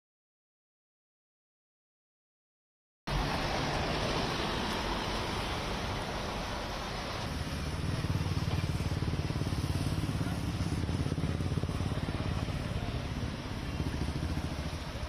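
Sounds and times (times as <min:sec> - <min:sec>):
rickshaw engine puttering: 0:03.1 - 0:15.0.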